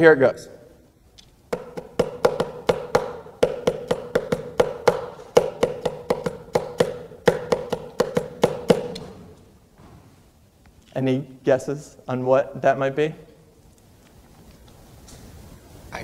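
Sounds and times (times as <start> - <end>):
fingers tapping on wood: 1.5 - 9.1.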